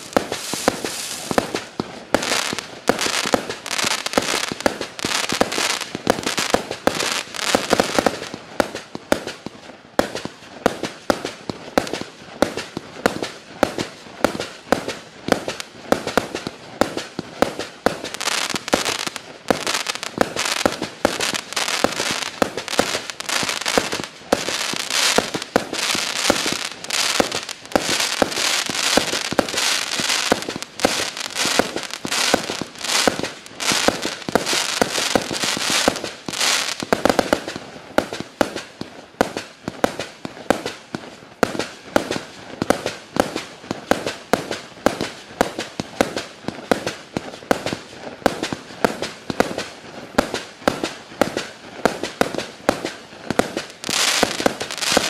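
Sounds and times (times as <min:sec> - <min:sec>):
firework shots and bursts: 0:00.0 - 0:55.0.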